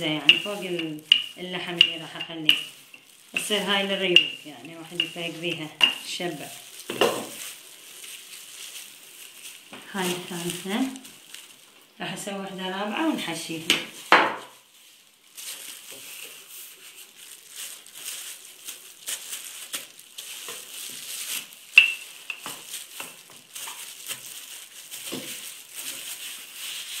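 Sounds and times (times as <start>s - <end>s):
plastic gloves crinkling: 0.0s - 27.0s.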